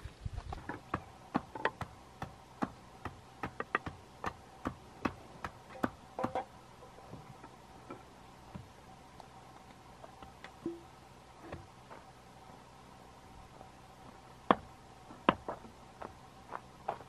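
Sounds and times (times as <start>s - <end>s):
bamboo knocking against bamboo: 0.6s - 6.5s.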